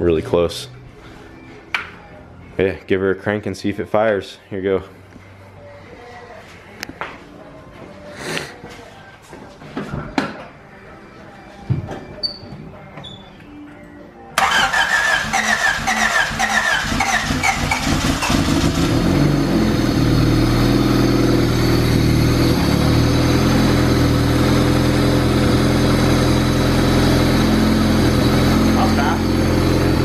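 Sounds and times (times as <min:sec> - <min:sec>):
engine starter cranking: 0:14.4 - 0:18.9
car engine idling: 0:14.4 - 0:30.0.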